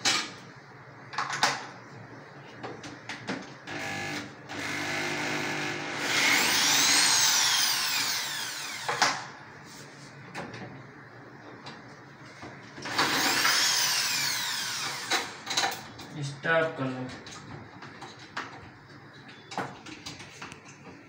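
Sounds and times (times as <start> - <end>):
electric drill motor whine: 3.7 - 9.2, 12.8 - 15.4.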